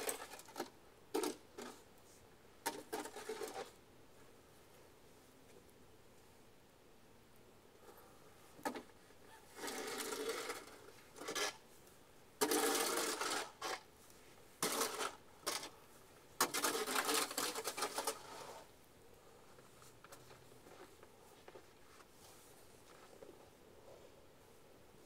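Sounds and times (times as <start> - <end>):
snow shovel scraping icy snow: 12.4 - 13.8, 14.6 - 15.7, 16.4 - 18.7.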